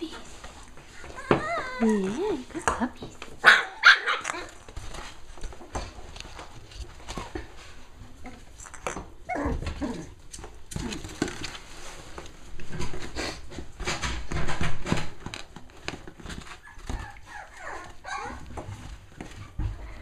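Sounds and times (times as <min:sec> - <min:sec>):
puppies whimpering and yipping: 0:00.9 - 0:02.4, 0:16.3 - 0:20.0.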